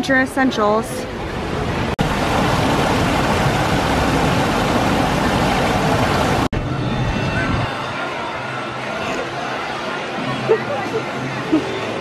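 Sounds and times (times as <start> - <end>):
water rushing over rocks: 1.8 - 6.5.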